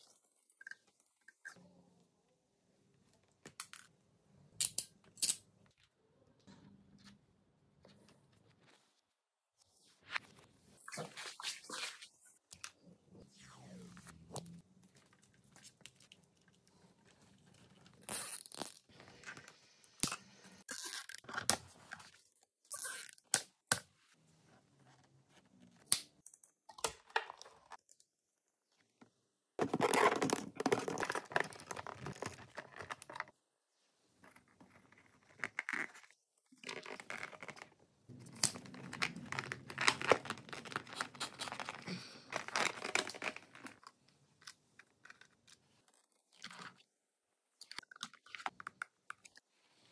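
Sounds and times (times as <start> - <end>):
plastic tubing crinkling and rustling: 29.6 - 33.4, 34.3 - 46.9.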